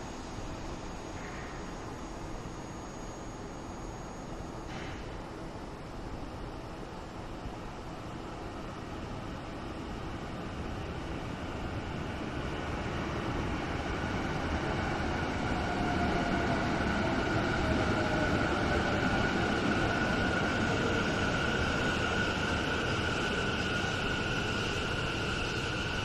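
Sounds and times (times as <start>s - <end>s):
high whine of train: 0.0s - 26.0s
metro train slowing: 0.0s - 26.0s.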